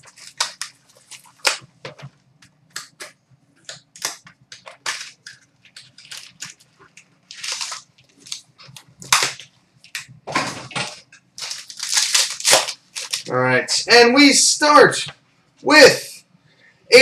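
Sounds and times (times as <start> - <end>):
foil wrapper tearing and crackling: 0.0 - 1.6, 3.9 - 9.5, 11.4 - 13.4.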